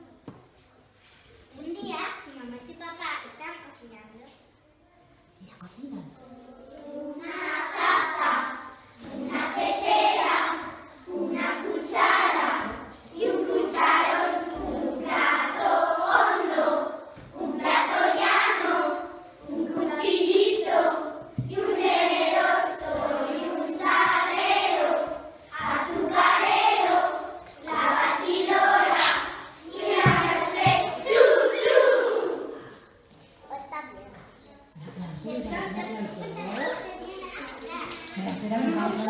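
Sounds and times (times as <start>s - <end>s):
children singing in unison: 6.6s - 32.8s.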